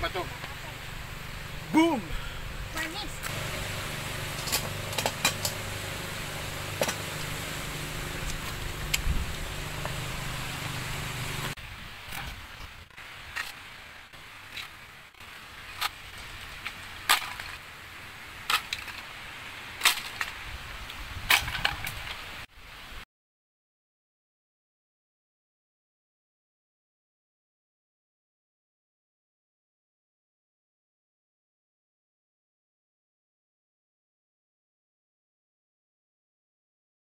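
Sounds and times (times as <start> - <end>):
low drone: 0.3 - 11.6
bamboo sticks clicking and knocking: 19.8 - 22.2.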